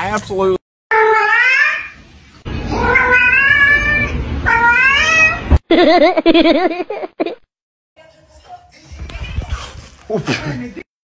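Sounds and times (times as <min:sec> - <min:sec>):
cat meowing: 0:00.9 - 0:02.0, 0:02.7 - 0:05.6.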